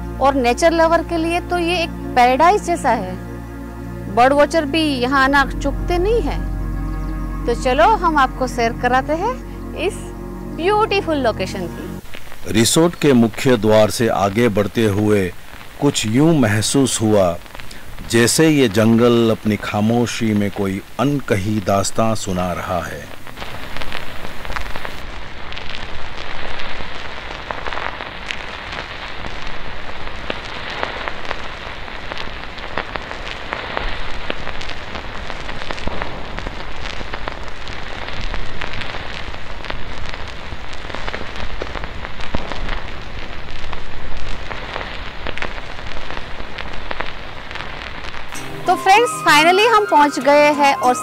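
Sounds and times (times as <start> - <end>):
low engine rumble: 0.0 - 14.9
tyres crackling over gravel: 12.0 - 51.0.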